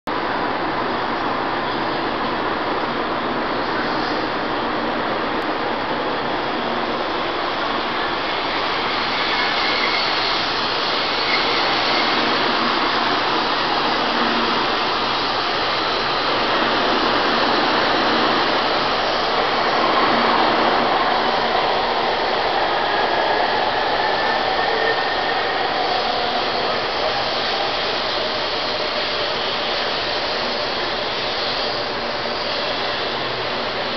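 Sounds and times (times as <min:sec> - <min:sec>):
train rushing hiss: 0:00.2 - 0:33.9
faint rising whines: 0:06.2 - 0:33.9.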